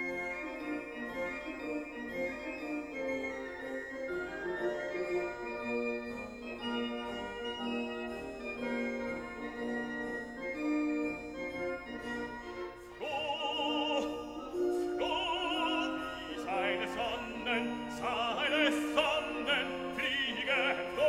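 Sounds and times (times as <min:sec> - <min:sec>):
operatic singing: 0:13.0 - 0:21.0.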